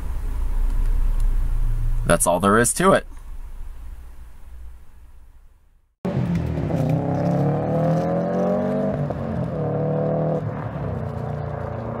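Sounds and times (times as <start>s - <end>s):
car engine accelerating: 6.0s - 12.0s.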